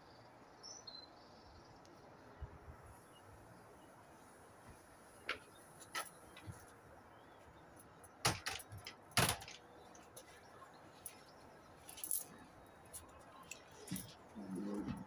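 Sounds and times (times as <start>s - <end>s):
sharp knocks and clicks: 8.2s - 9.6s.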